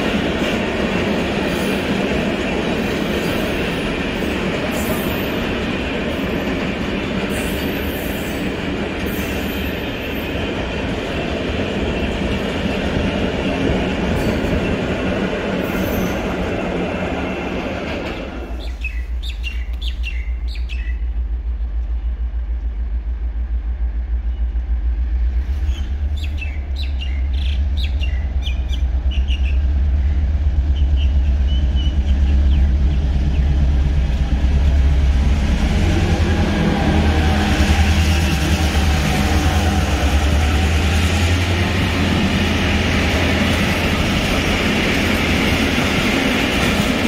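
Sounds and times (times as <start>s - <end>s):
train rolling on rails: 0.0s - 47.0s
engine low rumble: 18.5s - 40.6s
birds chirping: 18.6s - 21.2s, 25.7s - 33.8s.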